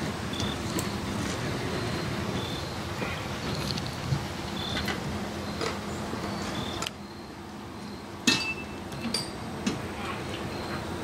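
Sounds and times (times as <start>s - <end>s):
metal clinks and knocks: 8.2s - 9.4s
ringing metal clank: 8.2s - 9.4s.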